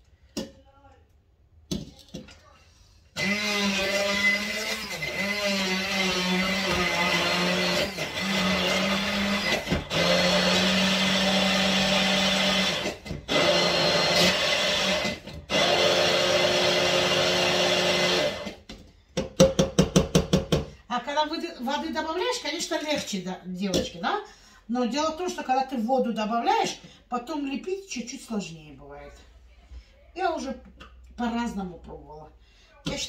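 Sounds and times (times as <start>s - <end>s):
food processor motor running: 3.2s - 18.6s.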